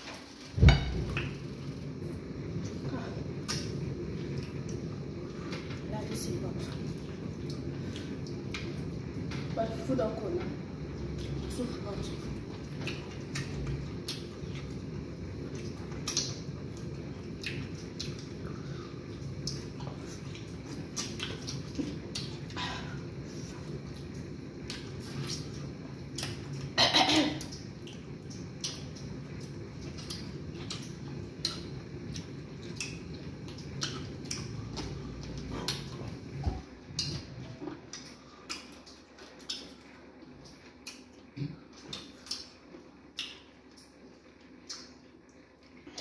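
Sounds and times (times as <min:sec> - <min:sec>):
steady low hum: 0:00.0 - 0:46.0
chewing and lip-smacking: 0:12.5 - 0:22.6, 0:23.2 - 0:26.7, 0:27.4 - 0:46.0.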